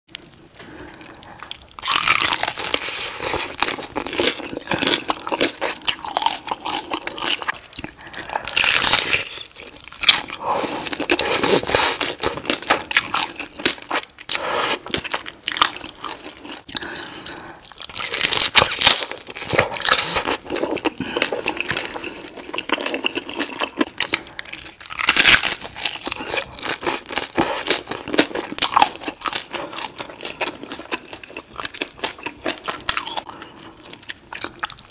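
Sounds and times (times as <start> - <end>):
chewing: 0.1 - 34.9
crunchy bites into tacos: 1.7 - 10.4, 21.6 - 33.3.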